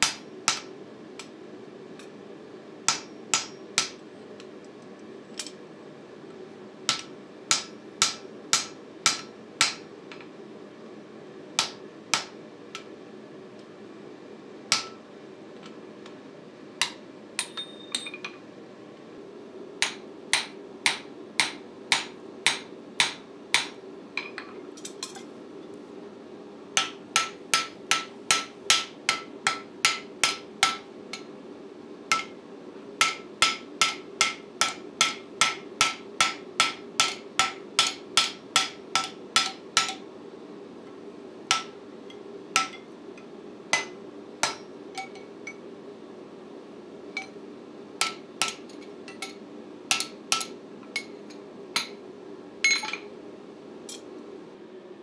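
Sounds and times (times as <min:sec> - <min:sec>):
hammer striking steel on anvil: 0:00.0 - 0:00.7, 0:02.9 - 0:04.0, 0:06.9 - 0:09.8, 0:11.6 - 0:12.9, 0:14.7 - 0:15.0, 0:16.8 - 0:18.4, 0:19.8 - 0:24.4, 0:26.8 - 0:31.3, 0:32.1 - 0:32.4, 0:33.0 - 0:40.0, 0:41.5 - 0:41.8, 0:42.6 - 0:42.9, 0:43.7 - 0:45.6, 0:48.0 - 0:51.2, 0:51.8 - 0:52.0.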